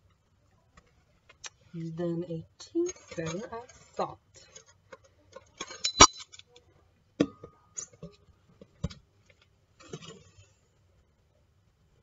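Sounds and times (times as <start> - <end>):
metal measuring spoons clinking: 2.6 - 4.7, 5.4 - 6.4.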